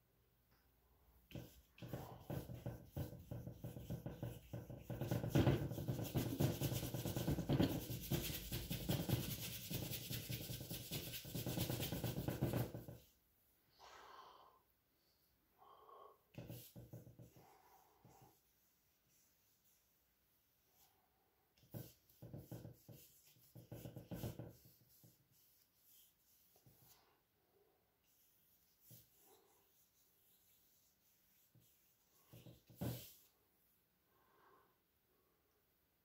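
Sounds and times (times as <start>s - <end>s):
paintbrush scrubbing: 1.3s - 13.2s, 16.3s - 20.0s, 21.6s - 27.1s, 28.0s - 33.4s.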